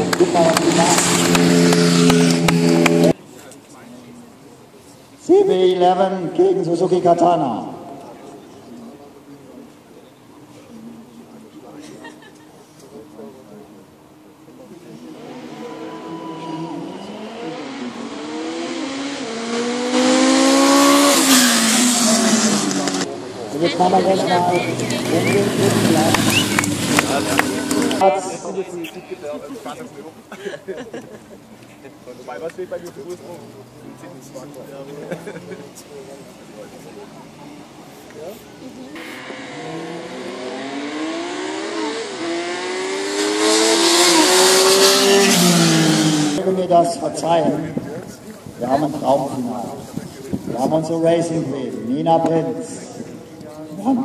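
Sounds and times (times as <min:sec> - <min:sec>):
motorcycles accelerating: 0:00.0 - 0:03.2, 0:11.1 - 0:30.3, 0:32.5 - 0:54.0.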